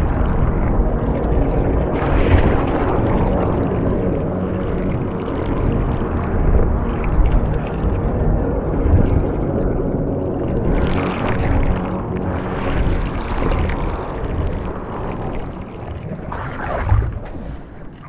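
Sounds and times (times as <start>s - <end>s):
deep rumbling drone: 0.0s - 18.0s
rushes of noise: 10.6s - 18.0s.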